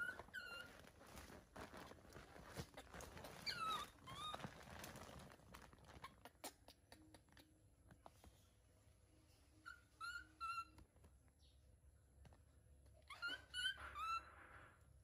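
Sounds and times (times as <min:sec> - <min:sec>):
clicking and rustling of plastic: 0:00.0 - 0:06.4
baby monkey squealing: 0:03.3 - 0:04.4, 0:09.7 - 0:10.8, 0:13.1 - 0:14.5.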